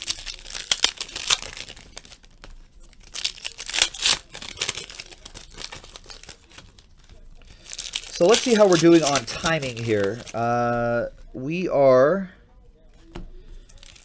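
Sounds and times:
foil wrapper tearing and crinkling: 0:00.0 - 0:10.8, 0:13.7 - 0:14.0.

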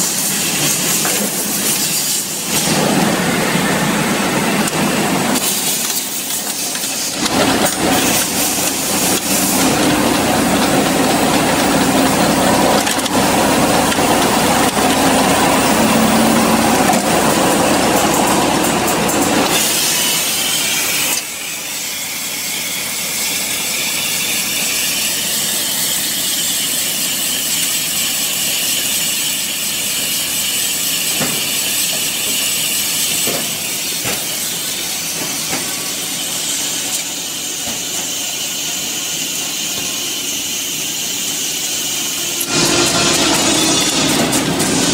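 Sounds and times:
bottling machine hiss: 0:00.0 - 0:44.9.

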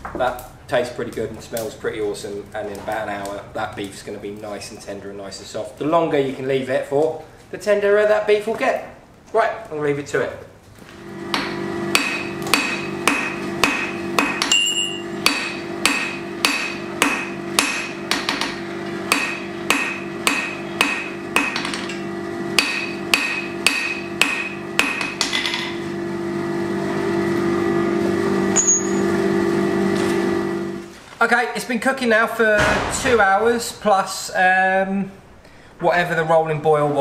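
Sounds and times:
hammer striking steel on anvil: 0:11.3 - 0:22.0, 0:22.6 - 0:25.8, 0:28.5 - 0:29.2
low hum: 0:25.6 - 0:30.9.

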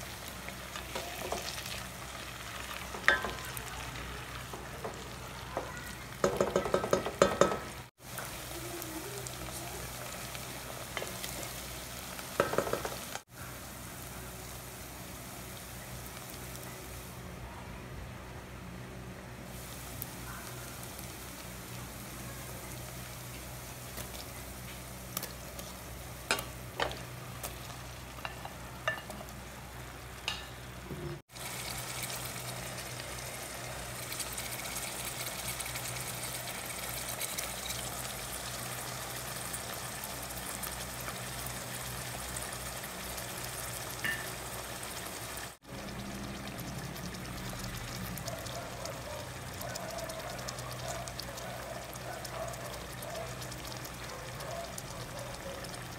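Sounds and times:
meat sizzling in oil: 0:00.0 - 0:17.2, 0:19.5 - 0:55.9.

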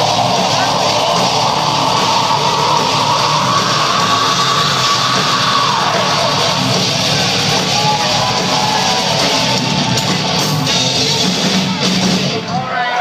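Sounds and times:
live heavy metal band: 0:00.0 - 0:13.0.

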